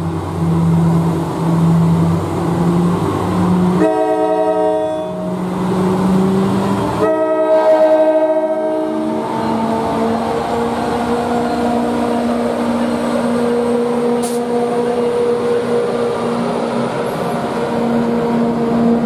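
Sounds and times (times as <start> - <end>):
locomotive diesel engine running: 0.0 - 7.3, 8.4 - 19.0
locomotive horn blasts: 3.7 - 5.4, 7.0 - 10.2.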